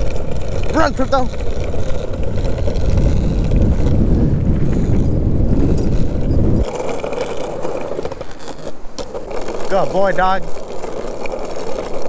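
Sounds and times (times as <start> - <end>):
skateboard wheels rumbling on asphalt: 0.0 - 12.0
wind buffeting microphone: 0.0 - 12.0.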